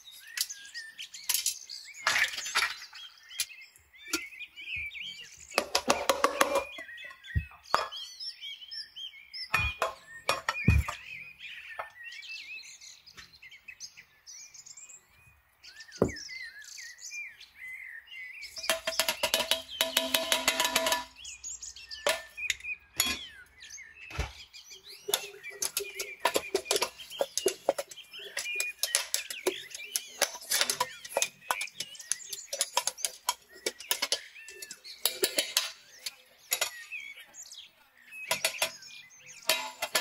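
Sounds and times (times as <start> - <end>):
birds chirping: 0.0 - 40.0
metal sieve clicking and tapping: 18.6 - 21.1, 25.1 - 35.8, 36.5 - 36.9, 38.3 - 38.8, 39.4 - 40.0.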